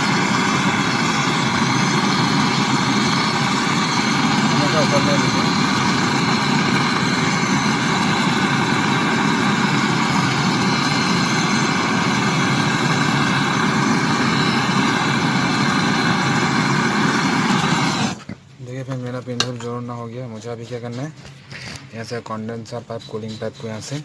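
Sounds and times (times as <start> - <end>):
torch flame hissing: 0.0 - 18.4.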